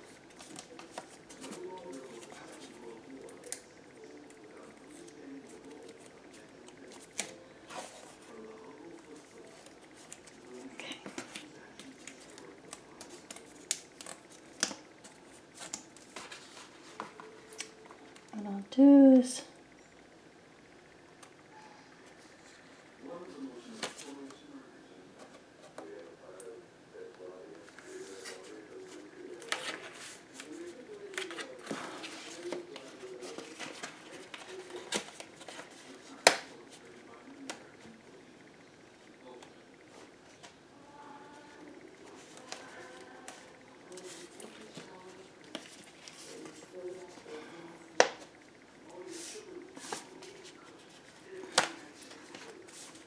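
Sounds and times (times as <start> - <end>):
paper rustling: 27.7 - 37.6.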